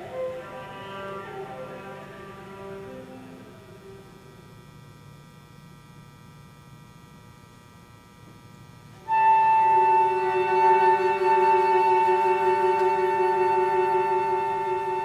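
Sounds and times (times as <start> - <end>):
flute and viola playing: 0.0 - 4.2, 9.0 - 15.0.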